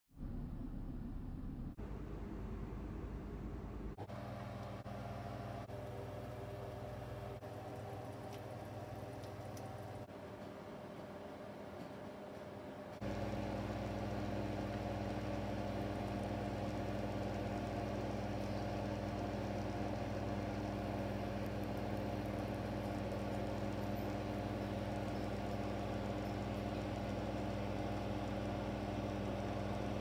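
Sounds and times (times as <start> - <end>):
kitchen appliance motor hum: 3.7 - 10.1, 13.0 - 30.0.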